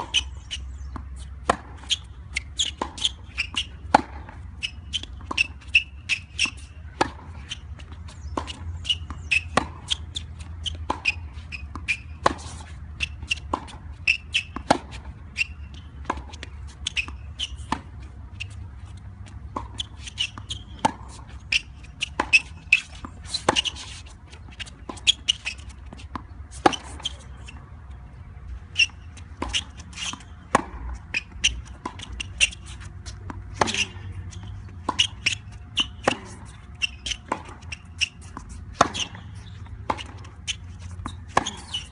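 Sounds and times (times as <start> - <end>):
tennis balls bouncing on hard court: 0.0 - 41.9
tennis balls struck by rackets: 0.0 - 41.9.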